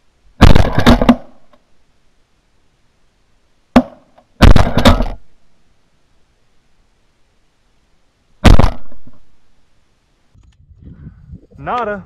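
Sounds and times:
shotgun blasts: 0:00.4 - 0:01.5, 0:03.8 - 0:05.3, 0:08.4 - 0:09.3.

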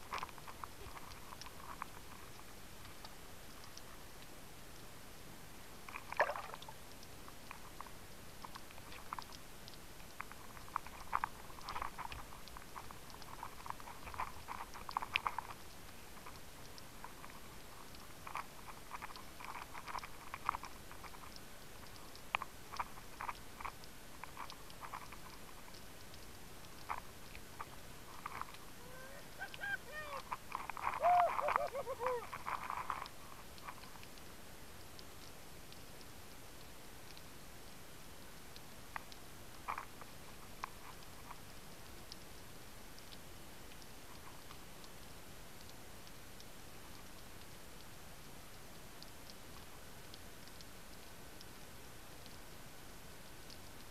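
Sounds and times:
underwater clicks and crackles: 0:00.0 - 0:05.0, 0:05.6 - 0:53.9
bubbling and gurgling: 0:05.9 - 0:06.8.

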